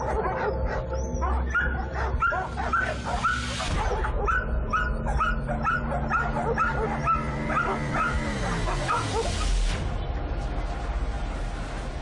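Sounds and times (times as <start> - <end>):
dog yipping and whimpering: 0.0 - 9.5.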